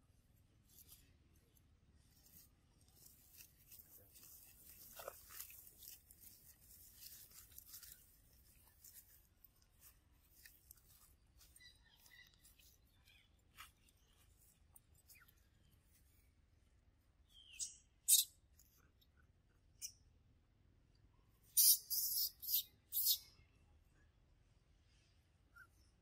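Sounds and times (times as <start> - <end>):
rustling of dry leaves: 1.9 - 16.2.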